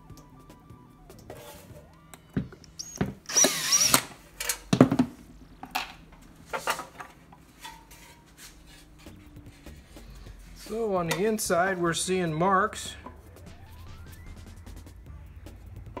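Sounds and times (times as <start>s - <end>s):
drill motor whining: 1.3s - 4.2s.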